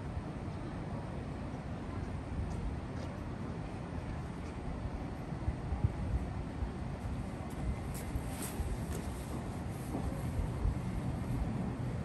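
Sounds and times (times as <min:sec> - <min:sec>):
tram rumbling slowly: 0:00.0 - 0:12.0.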